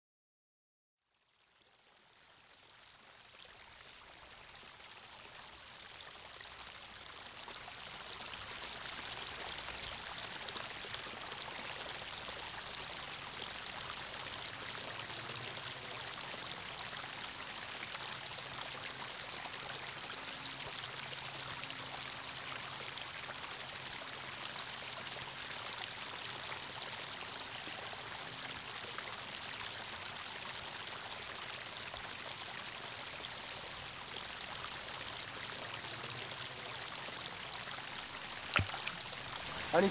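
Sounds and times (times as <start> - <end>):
water splashing over cascade: 38.0 - 39.9.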